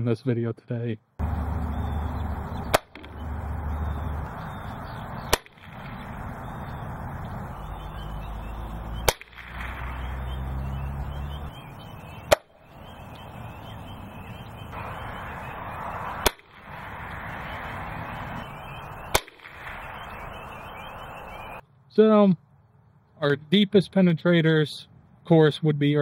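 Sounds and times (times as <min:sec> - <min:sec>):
air rifle shots: 0:02.7 - 0:03.2, 0:04.2 - 0:06.7, 0:09.0 - 0:10.1, 0:14.8 - 0:18.5, 0:19.1 - 0:20.0.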